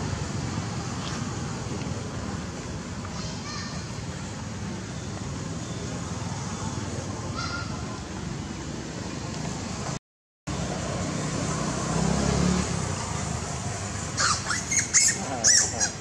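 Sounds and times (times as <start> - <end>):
monkey squealing: 14.2 - 16.0.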